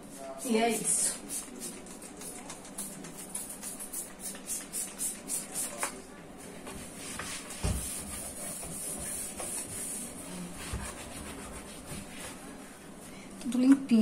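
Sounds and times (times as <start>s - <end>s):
cloth wiping surface: 6.8s - 13.0s.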